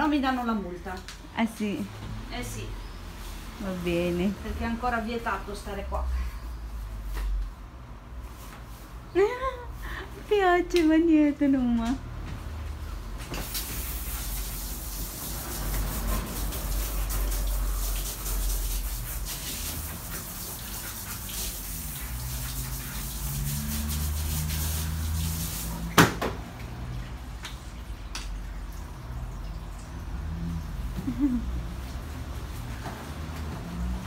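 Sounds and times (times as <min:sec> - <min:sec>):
hand shower spraying water: 0:13.3 - 0:27.4.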